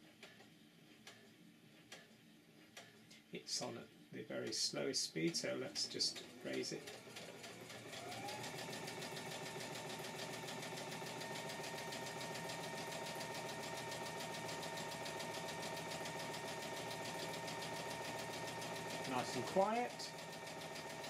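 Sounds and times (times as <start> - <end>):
sewing machine stitching: 6.0 - 21.0.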